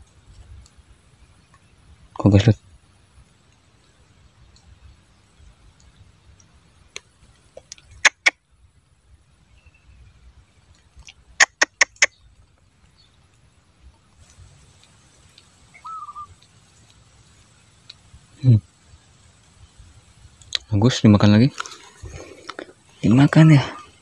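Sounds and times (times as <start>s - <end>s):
faint bird chirps: 0.4s - 24.0s
sharp clicks: 10.7s - 12.1s.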